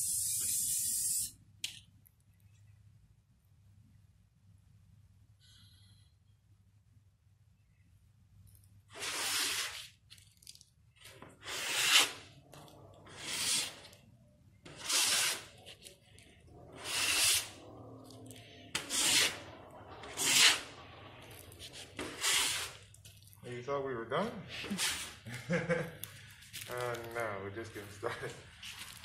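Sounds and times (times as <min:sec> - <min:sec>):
spray can hissing: 0:00.0 - 0:01.4.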